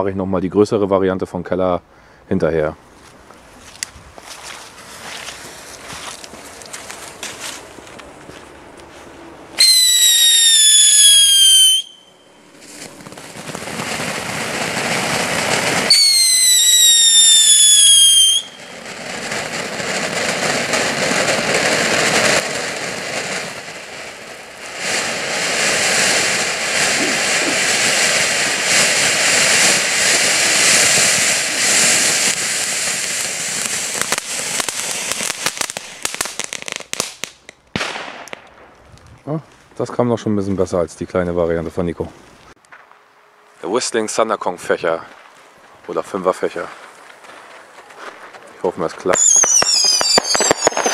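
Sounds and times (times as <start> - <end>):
firework sparks hissing and crackling: 3.6 - 39.1, 45.1 - 50.9
firework whistles falling in pitch: 9.6 - 13.3, 15.4 - 18.8, 49.1 - 50.9.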